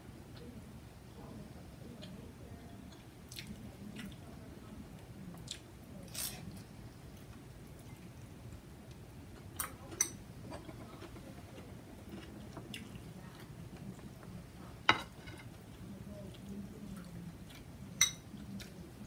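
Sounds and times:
metal spoon clinking on bowl: 18.0s - 18.2s.

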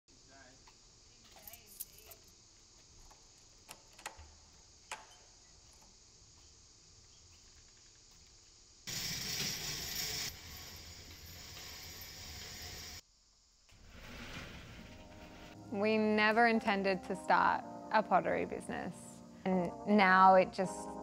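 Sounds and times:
metal roller shutter rattling: 8.9s - 13.0s, 13.8s - 15.6s.

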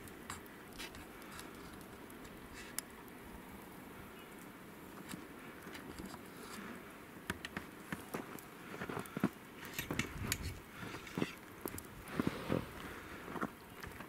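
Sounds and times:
footsteps crunching through snow: 12.1s - 13.5s.

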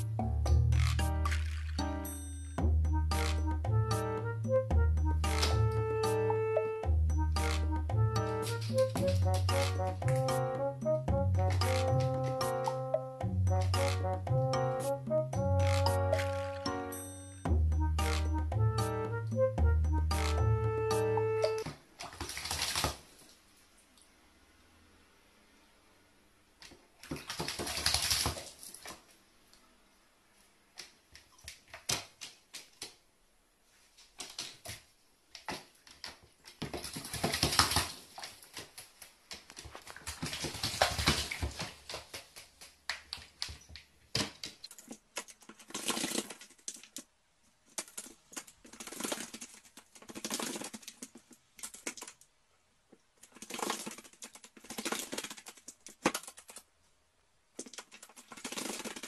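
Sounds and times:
bird splashing in water: 21.6s - 23.3s, 27.0s - 29.0s, 35.5s - 43.5s
wings fluttering: 47.8s - 52.2s, 53.2s - 56.6s, 57.6s - 59.0s.

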